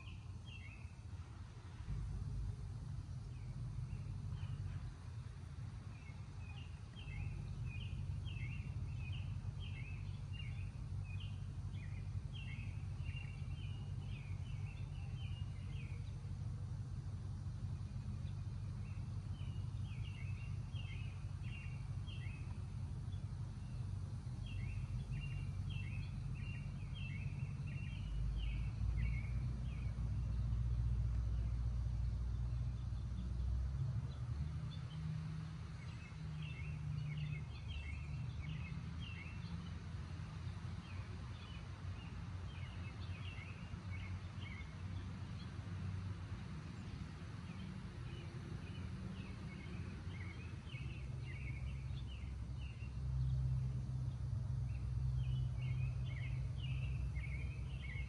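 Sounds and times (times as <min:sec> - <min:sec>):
low rumble: 0:00.0 - 0:34.9
songbird chirping: 0:00.0 - 0:58.0.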